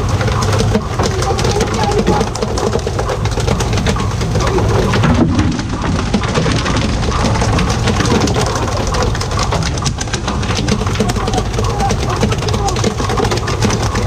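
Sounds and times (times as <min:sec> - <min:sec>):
sea water splashing: 0:00.0 - 0:14.0.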